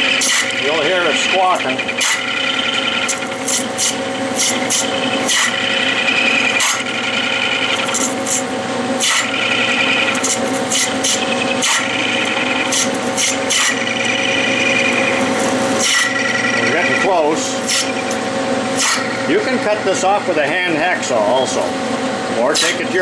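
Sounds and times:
lathe cutting metal chatter: 0.0 - 23.0.

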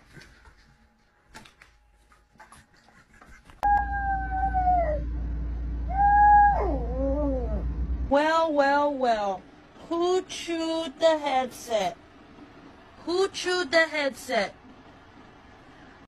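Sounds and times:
steady low hum: 0.0 - 16.0
dog howling: 3.6 - 7.9.

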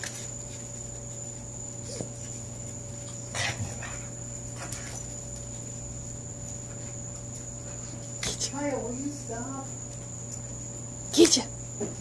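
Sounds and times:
dogs play-fighting: 0.0 - 8.8.

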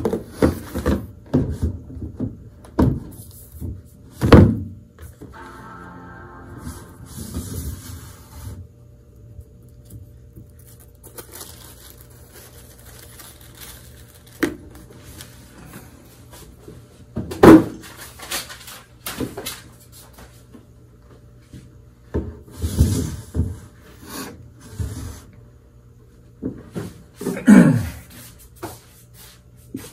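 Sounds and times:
cardboard packaging rustling: 9.6 - 16.0.

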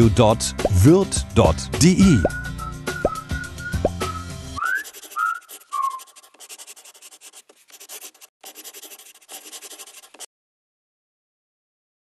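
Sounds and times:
pen scratching on paper: 4.6 - 10.3.

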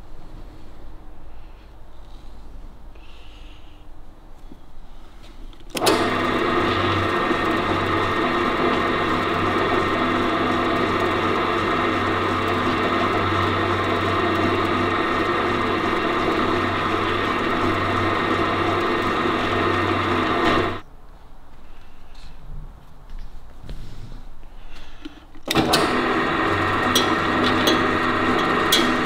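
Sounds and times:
pillar drill running: 5.7 - 20.8, 25.5 - 29.0.

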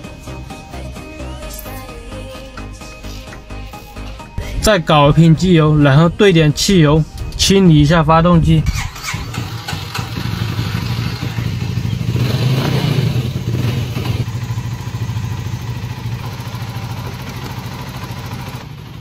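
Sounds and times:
motorcycle engine idling: 8.9 - 19.0.

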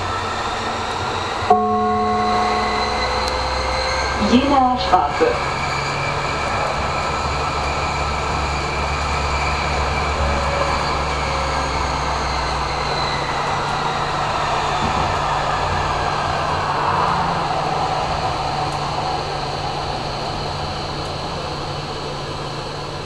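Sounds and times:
electric drive whine: 0.0 - 15.8
low hum: 0.0 - 23.0
tram wheels rolling on rails: 0.0 - 23.0.

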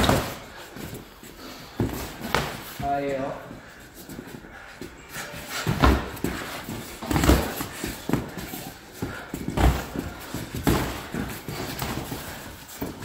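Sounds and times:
footwork on padded mat: 0.0 - 13.0
heavy thumps: 9.0 - 13.0.

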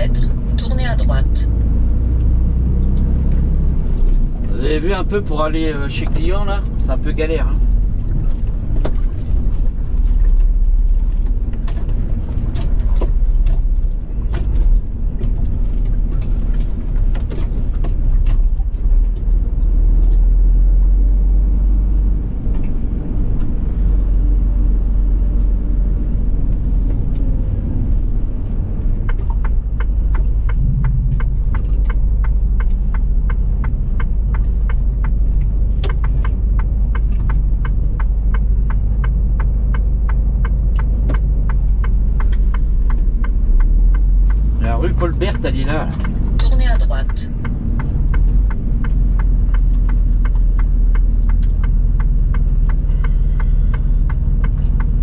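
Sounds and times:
truck engine and road rumble: 0.0 - 55.0
rapid even ticking: 28.4 - 55.0.

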